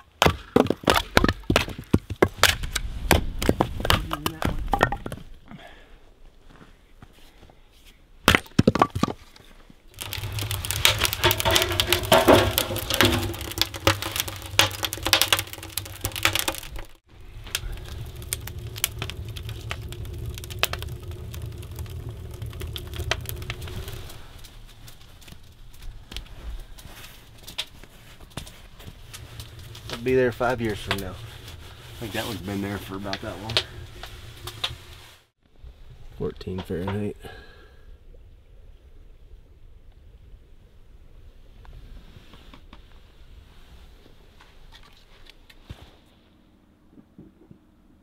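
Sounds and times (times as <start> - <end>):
axe splitting firewood: 0.2 - 5.2, 10.0 - 24.0
wood fire crackling and popping: 9.9 - 35.4
steady low rumble: 17.0 - 24.9.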